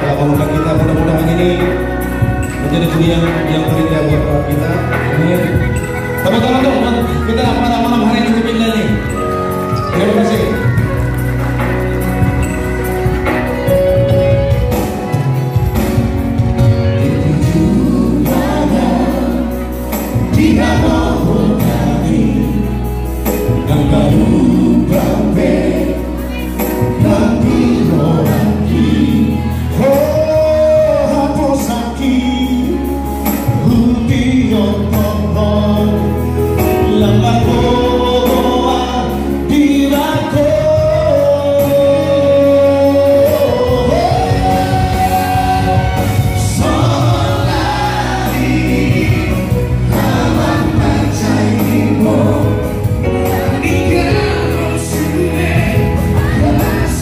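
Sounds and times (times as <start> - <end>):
amplified backing music: 0.0 - 57.0
male vocal trio singing: 17.0 - 57.0.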